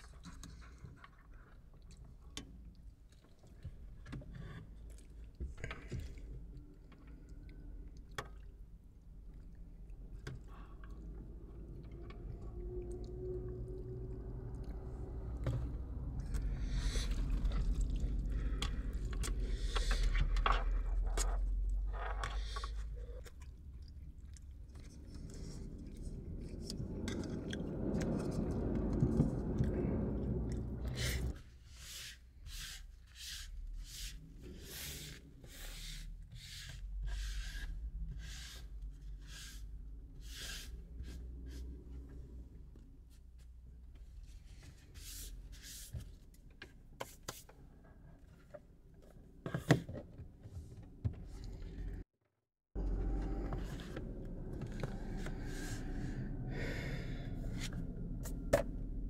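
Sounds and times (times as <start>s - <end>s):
chewing: 22.4s - 31.3s.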